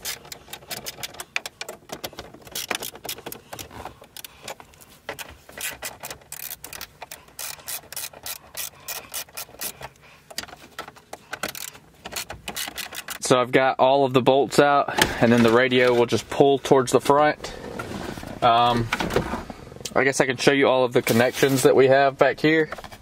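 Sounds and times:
ratchet wrench clicking: 0:05.6 - 0:09.8, 0:11.4 - 0:13.2.

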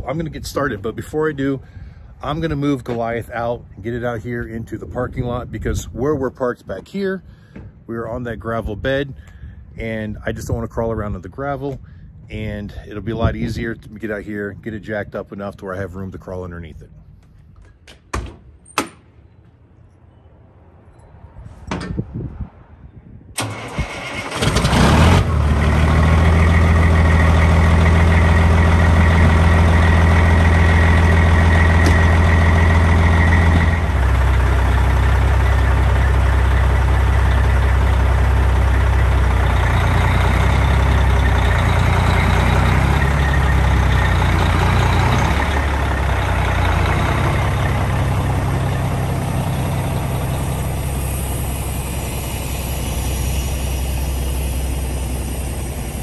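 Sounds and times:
truck diesel engine cranking: 0:23.4 - 0:56.0
truck diesel engine idling: 0:23.4 - 0:56.0.

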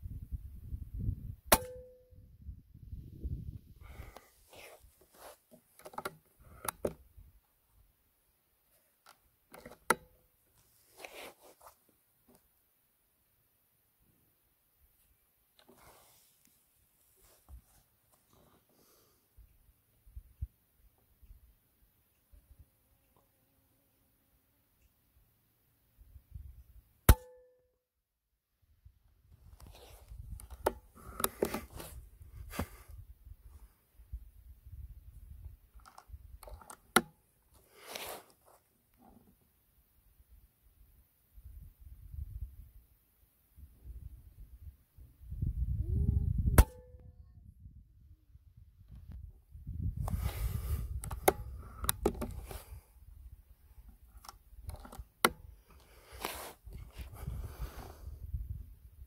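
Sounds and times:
clicks and knocks handling rifle: 0:03.9 - 0:07.1, 0:08.7 - 0:12.5, 0:15.0 - 0:16.6, 0:29.4 - 0:32.8, 0:35.7 - 0:39.4, 0:50.0 - 0:52.8, 0:53.8 - 0:57.1
air rifle clicks and snaps: 0:35.8 - 0:37.2, 0:50.9 - 0:52.6, 0:54.2 - 0:55.4
air rifle shot: 0:46.6 - 0:46.8.

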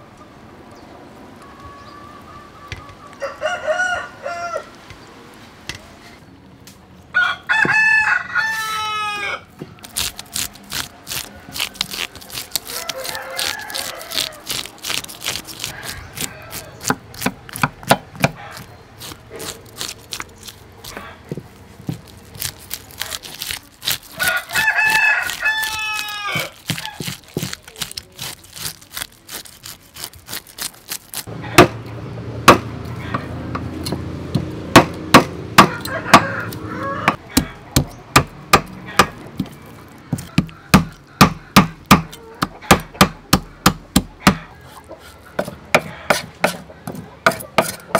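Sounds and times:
rooster crowing: 0:03.2 - 0:04.8, 0:07.1 - 0:09.5, 0:11.2 - 0:17.0, 0:24.1 - 0:27.2, 0:35.6 - 0:37.6, 0:45.4 - 0:46.4
fish scaler scraping scales: 0:09.8 - 0:31.3.

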